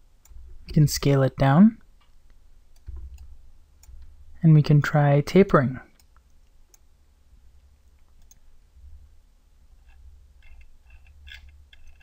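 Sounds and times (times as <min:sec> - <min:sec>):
low steady hum: 0:00.0 - 0:12.0
computer mouse and keyboard clicking: 0:08.0 - 0:08.4, 0:09.8 - 0:12.0.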